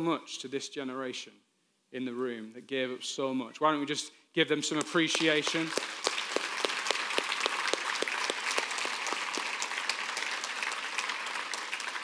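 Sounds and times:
congregation applauding: 0:04.8 - 0:12.0.

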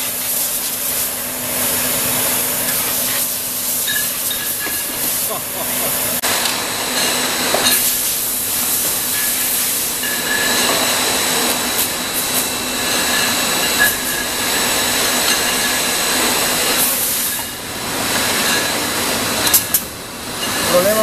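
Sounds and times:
machine hiss: 0:00.0 - 0:21.0.

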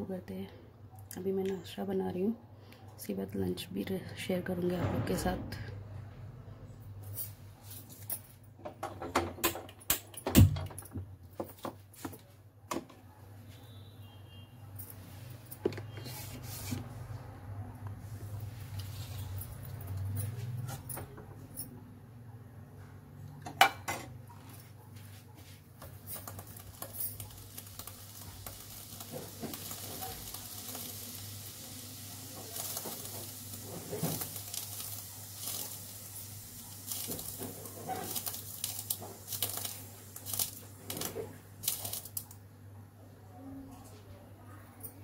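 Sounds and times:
hot oil sizzling and crackling: 0:26.1 - 0:42.3.

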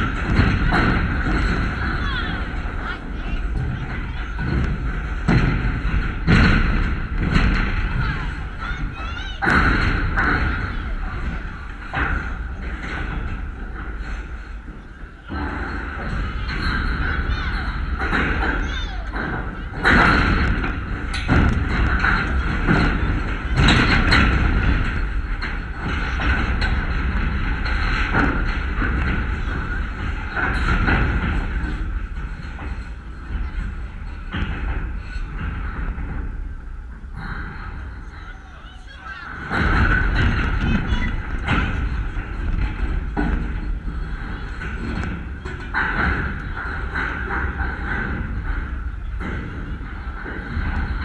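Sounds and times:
close thuds: 0:00.0 - 0:38.3, 0:39.1 - 0:51.0
sharp knocks: 0:00.0 - 0:38.3, 0:39.0 - 0:51.0
wind rumbling on microphone: 0:00.0 - 0:38.4, 0:39.2 - 0:51.0
children calling out: 0:07.9 - 0:09.6, 0:17.0 - 0:19.8, 0:38.0 - 0:39.5.

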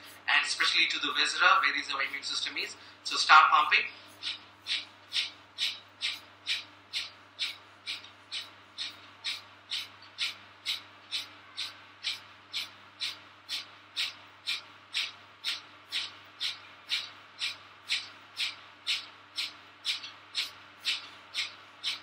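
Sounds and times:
quiet inhalations: 0:02.7 - 0:03.2, 0:03.9 - 0:04.3.

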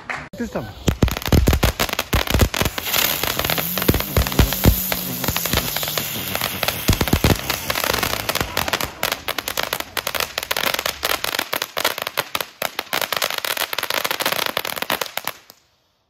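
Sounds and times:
fountain fireworks hissing: 0:00.4 - 0:15.5
small crackling pops: 0:00.8 - 0:12.3.

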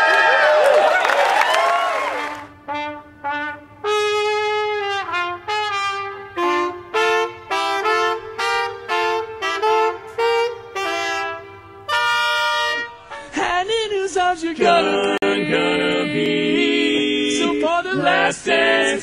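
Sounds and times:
trumpet playing notes: 0:02.0 - 0:13.5.

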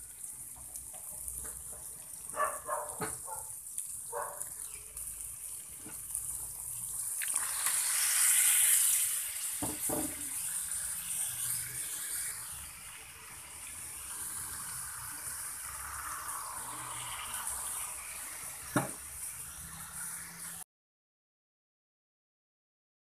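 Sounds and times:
potatoes sizzling in a pan: 0:00.0 - 0:20.6
spatula stirring in a pan: 0:03.0 - 0:20.6.

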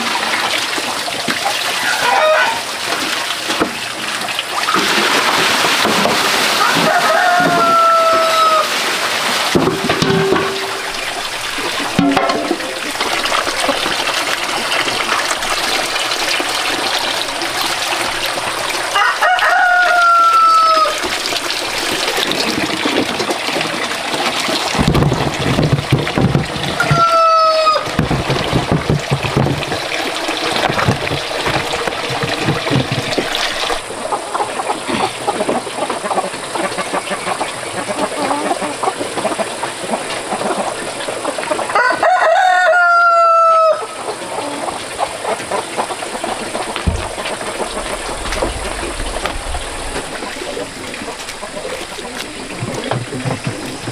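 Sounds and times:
chickens clucking: 0:01.4 - 0:02.8, 0:06.1 - 0:21.2, 0:24.9 - 0:29.7, 0:30.3 - 0:53.9
rooster crowing: 0:01.8 - 0:02.6, 0:06.5 - 0:08.8, 0:18.9 - 0:21.0, 0:26.8 - 0:27.9, 0:41.7 - 0:44.0.

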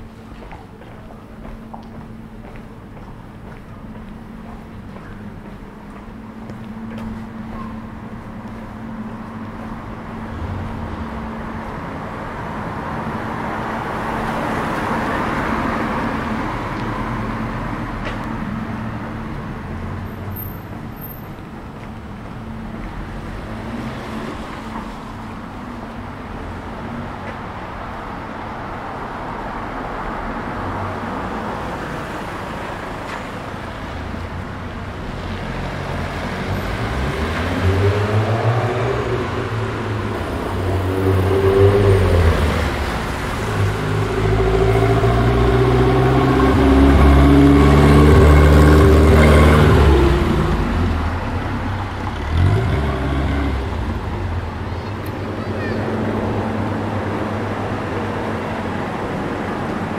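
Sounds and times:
vehicles passing: 0:00.0 - 0:59.9.

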